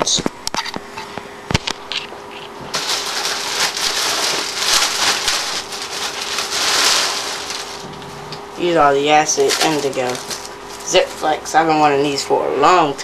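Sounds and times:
packing paper rustling: 1.6 - 11.6.

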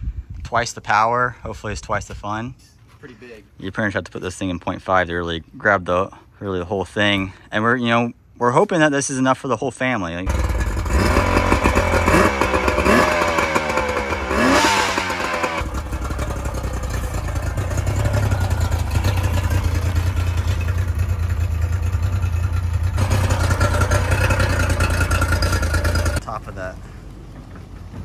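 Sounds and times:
outboard motor revving: 10.3 - 26.2.

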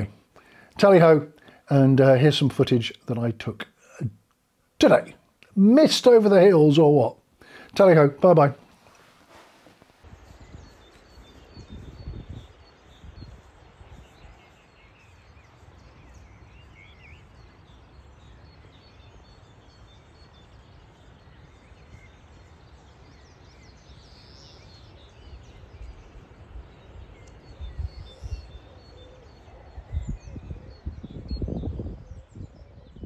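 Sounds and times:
low background hiss: 0.0 - 30.5
wind rumbling on microphone: 9.3 - 33.0
bird chirps: 10.0 - 33.0.

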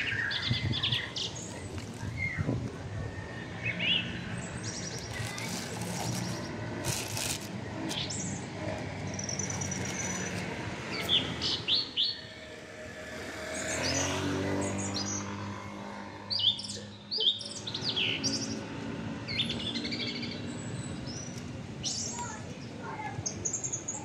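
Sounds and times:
small birds chirping: 3.3 - 12.2, 16.2 - 24.0
vehicle engine passing: 4.0 - 16.9.

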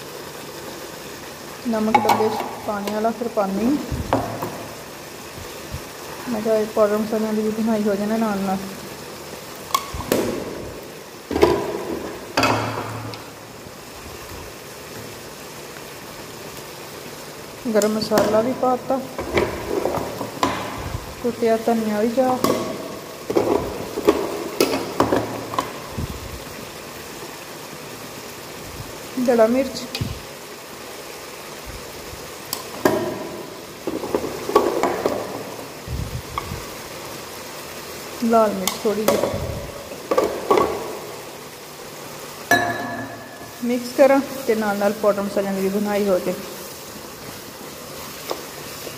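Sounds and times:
food sizzling: 0.0 - 48.9
pan hissing: 0.0 - 48.9
kitchen utensils clinking: 11.3 - 13.2, 22.2 - 25.8, 42.5 - 43.6.

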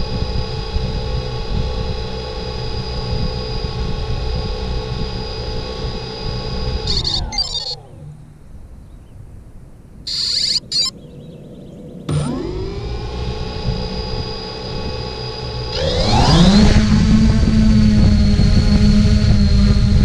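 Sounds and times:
drone motors and propellers: 0.0 - 8.8, 10.1 - 20.0
short high bursts: 6.9 - 8.2, 10.1 - 10.9.

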